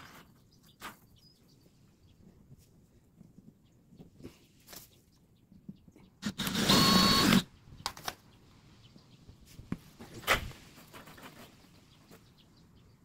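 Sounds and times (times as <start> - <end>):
cordless drill boring into plastic: 6.2 - 7.5.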